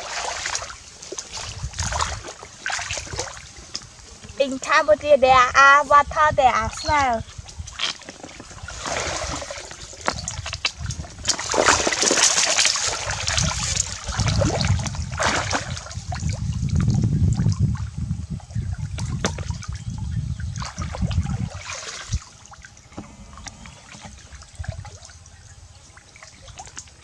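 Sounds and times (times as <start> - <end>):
legs sloshing through water: 0.0 - 4.2, 7.0 - 17.8, 18.6 - 27.0
water splashing: 0.0 - 4.6, 6.6 - 18.0, 20.5 - 27.0.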